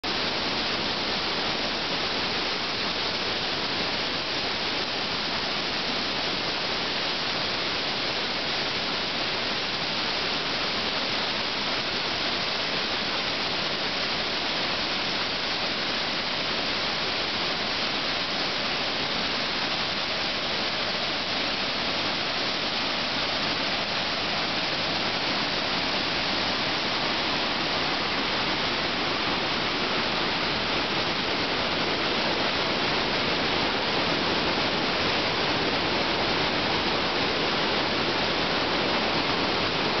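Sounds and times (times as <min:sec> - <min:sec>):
waterfall rushing over boulders: 0:00.0 - 0:40.0.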